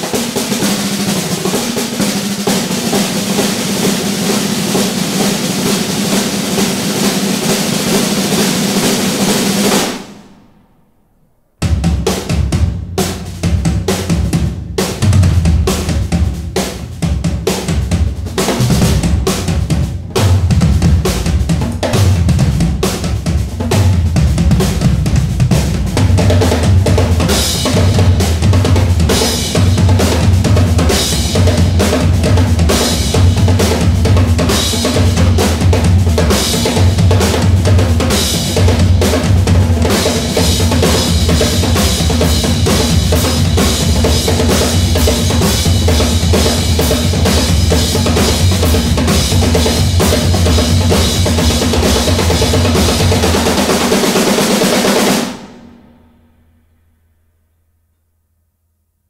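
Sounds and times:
snare drums playing: 0:00.0 - 0:10.3, 0:11.6 - 0:55.8
floor toms beating: 0:11.6 - 0:55.4.

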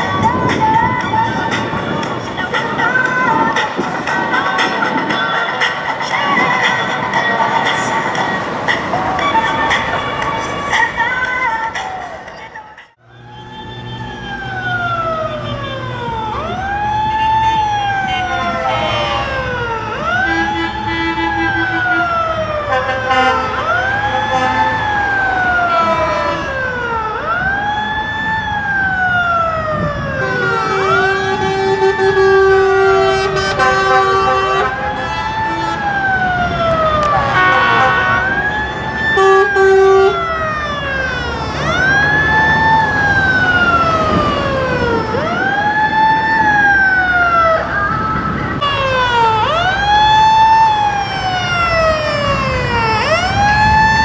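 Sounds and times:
siren wailing: 0:00.0 - 0:54.0
truck engines running: 0:00.0 - 0:54.0
horn blasts: 0:20.2 - 0:24.9, 0:30.2 - 0:36.0, 0:37.0 - 0:40.2.

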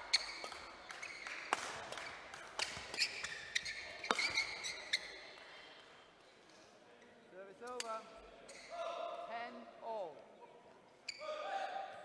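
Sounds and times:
shoes squeaking on court floor: 0:00.0 - 0:01.4, 0:02.6 - 0:05.3, 0:07.7 - 0:08.8, 0:11.0 - 0:11.4
rackets hitting shuttlecock: 0:04.0 - 0:04.8.

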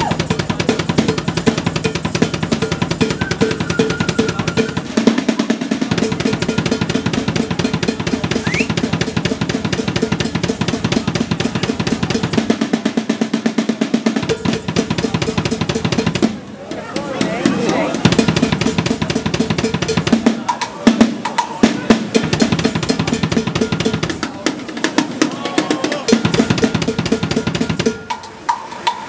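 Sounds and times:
snare drum rolls: 0:00.0 - 0:29.0
bass drum: 0:05.9 - 0:12.5, 0:17.0 - 0:20.4.

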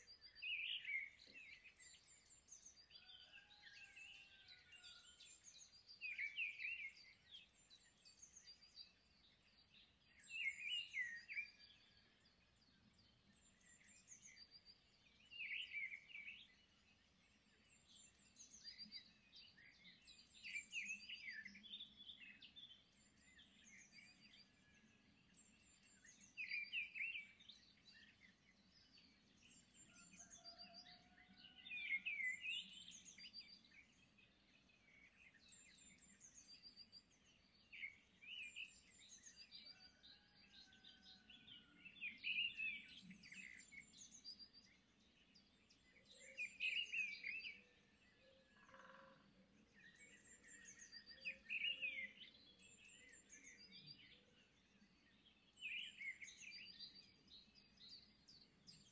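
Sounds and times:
small birds chirping: 0:04.4 - 0:58.9
thin whistled bird notes: 0:10.2 - 0:12.0, 0:29.5 - 0:31.1, 0:45.9 - 0:47.7, 0:49.7 - 0:58.9.

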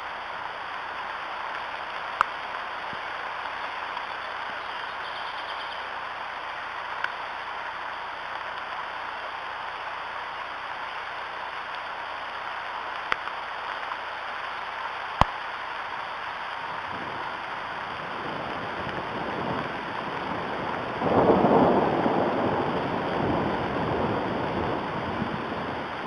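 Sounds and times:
rain hissing: 0:00.0 - 0:26.0
thunder rumble: 0:16.6 - 0:26.0.

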